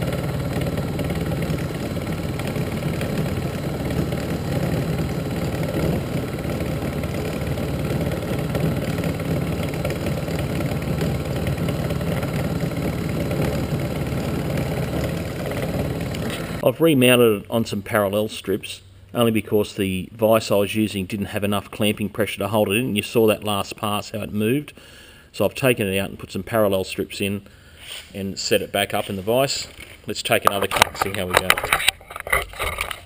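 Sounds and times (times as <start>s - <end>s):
motor and spindle hum: 0.0s - 16.6s.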